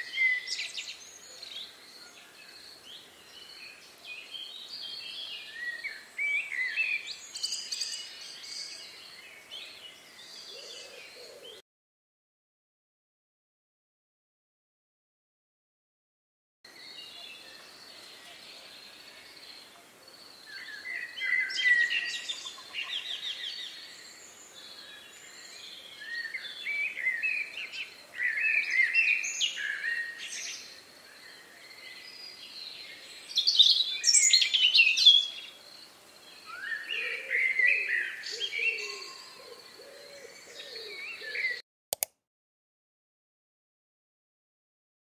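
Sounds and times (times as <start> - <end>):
songbirds singing: 0.0 - 11.6, 16.7 - 41.6
lower bird calls: 36.4 - 41.6.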